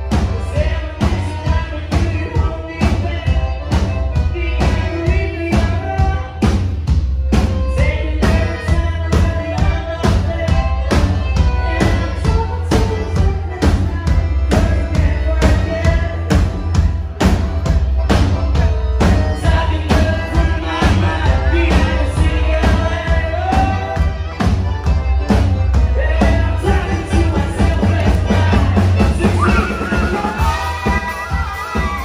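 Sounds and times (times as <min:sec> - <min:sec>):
accordion: 0:00.0 - 0:32.0
drum beat: 0:00.0 - 0:32.0
heavy bass line: 0:00.0 - 0:32.0
person singing: 0:07.4 - 0:16.8, 0:19.0 - 0:24.2, 0:25.9 - 0:32.0.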